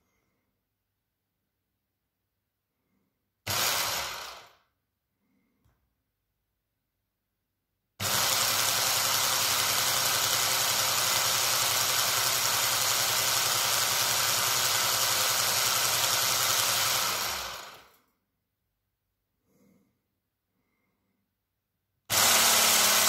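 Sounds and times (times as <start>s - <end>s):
hand blender motor whirring: 3.5s - 4.6s, 8.0s - 18.0s, 22.1s - 23.0s.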